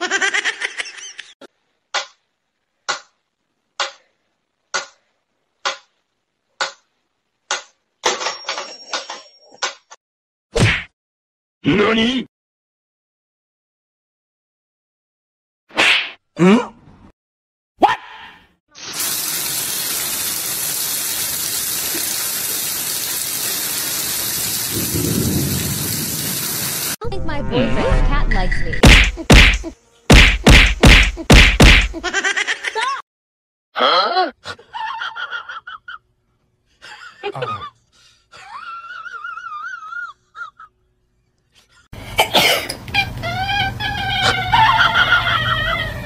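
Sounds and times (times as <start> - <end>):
heavy rain pouring: 18.8 - 27.0.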